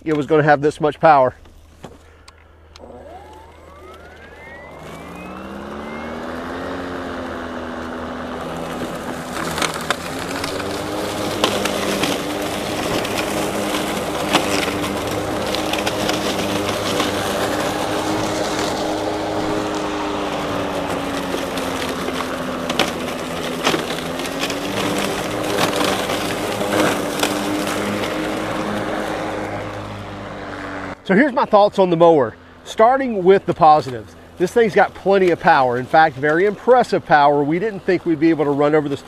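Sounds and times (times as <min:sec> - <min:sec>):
mower motor and blade whine: 0:01.4 - 0:39.0
stems cracking and snapping: 0:08.6 - 0:29.9.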